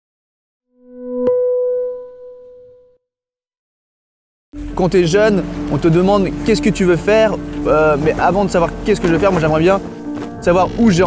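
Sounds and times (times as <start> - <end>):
synthesized tone: 0.7 - 3.0, 10.0 - 11.0.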